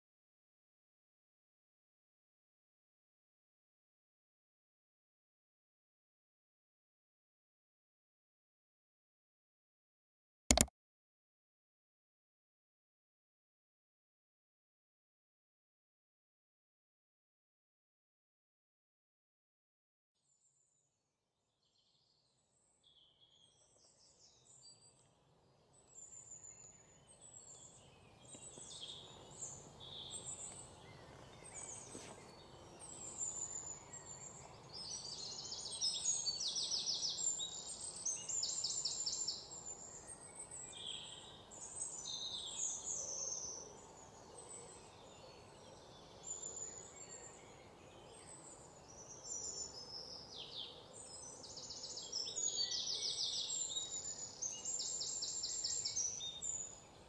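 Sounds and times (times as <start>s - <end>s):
small birds chirping and trilling: 21.7s - 57.0s
faint background noise: 22.6s - 57.0s.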